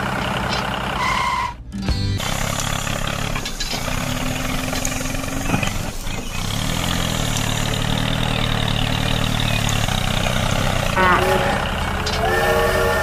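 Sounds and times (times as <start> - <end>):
tractor engine idling: 0.0 - 13.0
engine clicks: 2.2 - 11.0.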